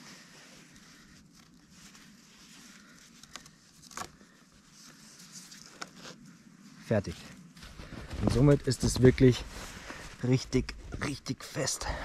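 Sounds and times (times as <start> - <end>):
cord rustling and rubbing: 0.0 - 6.8.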